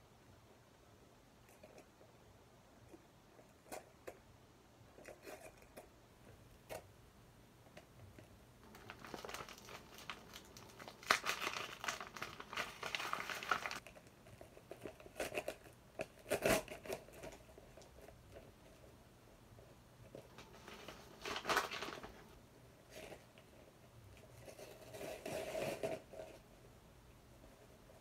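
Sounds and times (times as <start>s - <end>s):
packaging crinkling and tearing: 8.6s - 13.9s, 20.3s - 22.3s.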